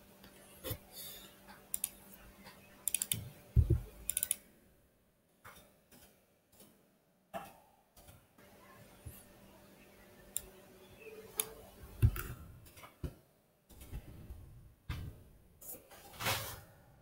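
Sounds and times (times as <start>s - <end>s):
mouse clicks: 2.8s - 4.4s
keyboard key presses: 2.9s - 4.4s.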